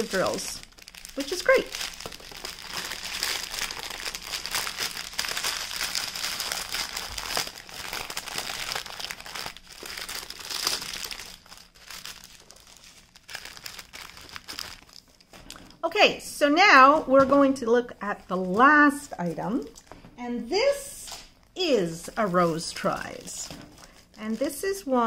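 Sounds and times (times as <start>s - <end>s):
plastic packaging crinkling: 0.0s - 15.8s, 21.4s - 25.0s.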